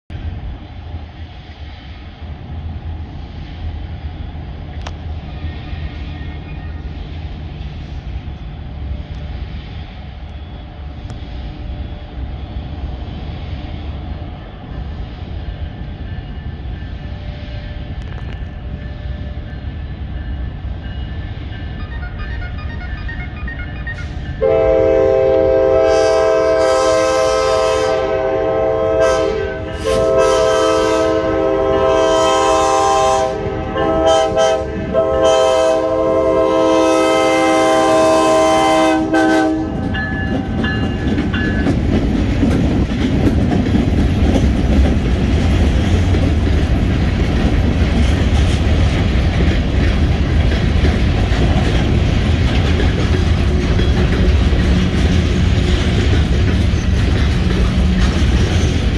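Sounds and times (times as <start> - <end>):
diesel locomotive rumble: 0.1 - 58.9
train wheels clattering on rails: 12.0 - 58.9
locomotive air horn chord: 21.9 - 39.9.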